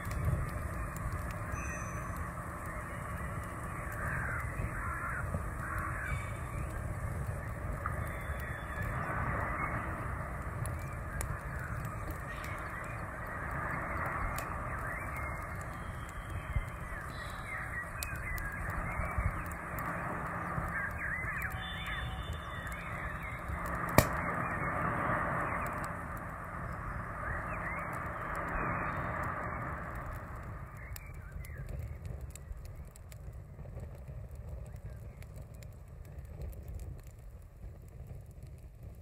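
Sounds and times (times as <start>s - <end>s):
birds calling: 0.6s - 10.1s, 10.7s - 26.0s.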